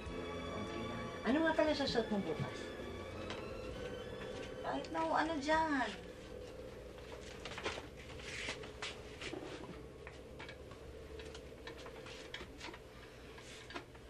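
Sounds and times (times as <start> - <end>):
faint steady hum: 0.0 - 14.0
clothes rustling: 2.3 - 14.0
clicks and knocks of handling: 10.0 - 14.0.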